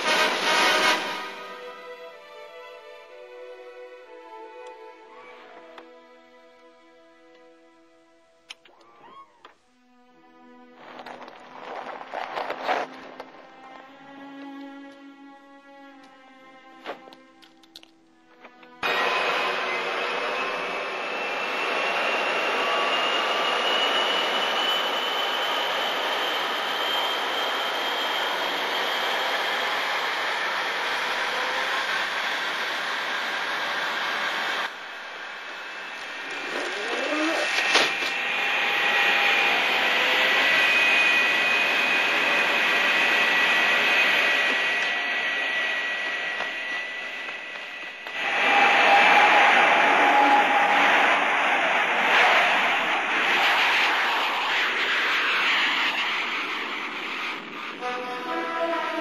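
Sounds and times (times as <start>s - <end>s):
loud engine roar: 18.8s - 59.0s
thin high whine: 18.8s - 59.0s.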